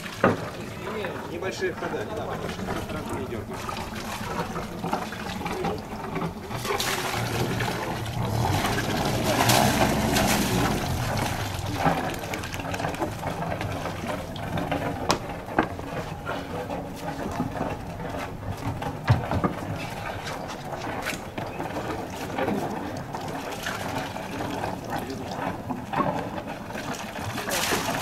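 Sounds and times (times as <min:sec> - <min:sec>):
water sloshing around hull: 0:00.0 - 0:28.0
low engine hum: 0:02.2 - 0:26.4
sharp knocks: 0:15.0 - 0:15.7.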